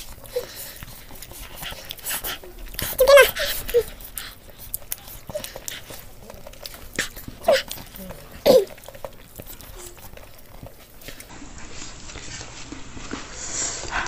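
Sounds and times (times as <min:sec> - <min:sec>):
high whimpers: 0:00.0 - 0:10.2
faint clicks and rustles: 0:00.0 - 0:14.0.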